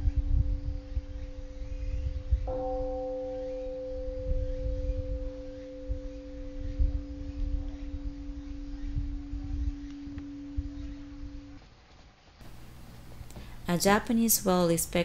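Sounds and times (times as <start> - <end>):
low uneven rumble: 0.0 - 15.0
bell-like ringing tones: 0.6 - 11.6.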